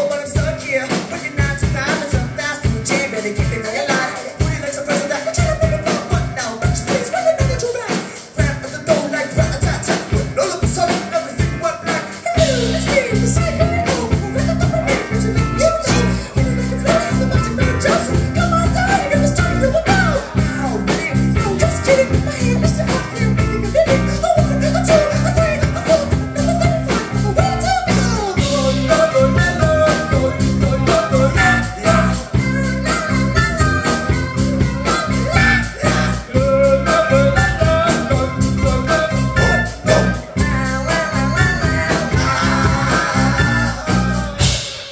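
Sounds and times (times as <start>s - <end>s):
guitar: 0.0s - 44.9s
person singing: 0.0s - 44.9s
steady drum beat: 0.0s - 44.9s
heavy bass: 12.3s - 44.9s.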